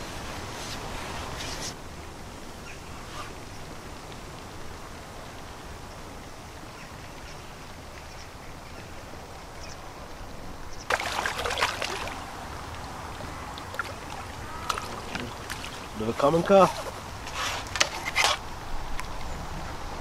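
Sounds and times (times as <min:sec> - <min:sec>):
outdoor background noise: 0:00.0 - 0:20.0
fish splashing at water surface: 0:10.9 - 0:18.0.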